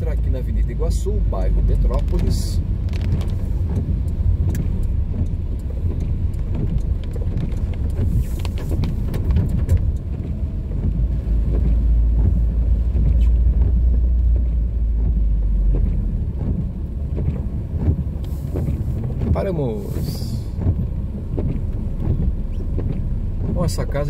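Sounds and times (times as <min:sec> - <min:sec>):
car engine and road rumble: 0:00.0 - 0:24.0
faint ticks: 0:01.8 - 0:18.9.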